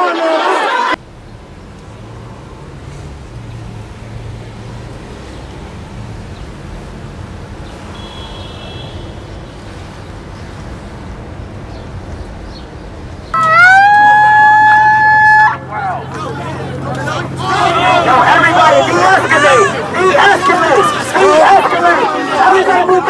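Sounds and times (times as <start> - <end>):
car road and engine noise: 0.9 - 23.0
siren rising in pitch: 13.4 - 15.8.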